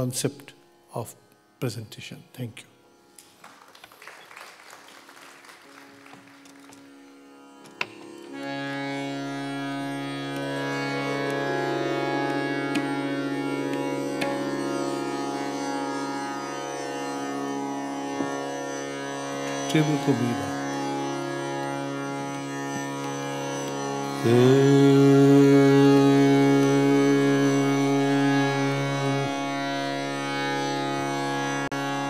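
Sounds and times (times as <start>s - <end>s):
harmonium drone: 4.6s - 32.0s
tanpura strings plucked: 6.4s - 32.0s.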